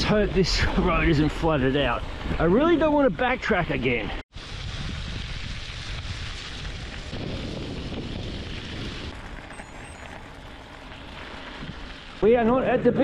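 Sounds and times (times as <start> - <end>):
bike tyres rolling on road: 0.0 - 13.0
wind rushing over microphone: 4.1 - 10.2.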